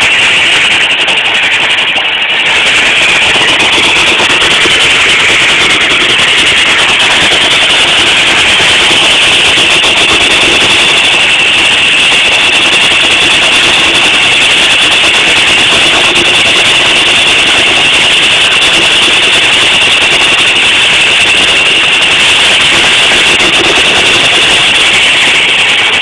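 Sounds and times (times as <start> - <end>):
high whine: 0.0 - 26.0
steam engine driving sawmill: 0.0 - 26.0.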